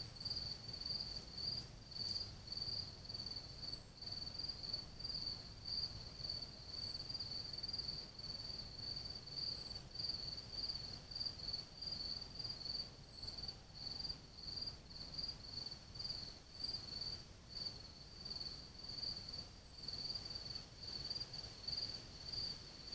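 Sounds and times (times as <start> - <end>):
cricket chirping: 0.0 - 22.9.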